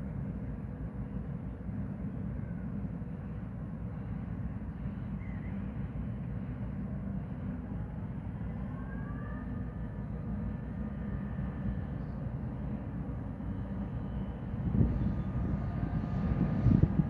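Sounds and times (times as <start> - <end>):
low outdoor rumble: 0.0 - 17.0
faint whine rising in pitch: 7.7 - 17.0.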